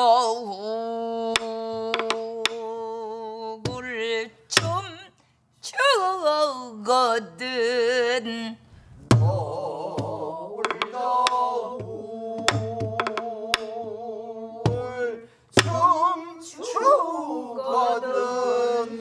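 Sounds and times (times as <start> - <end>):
stick striking barrel drum: 9.1 - 13.8.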